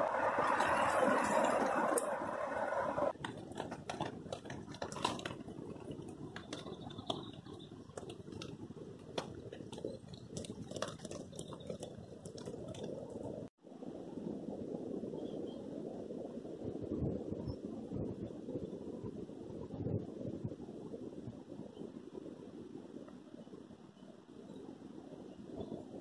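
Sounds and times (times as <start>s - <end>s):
rain hissing: 0.0s - 3.6s
raindrops tapping on a tarp: 3.1s - 13.6s.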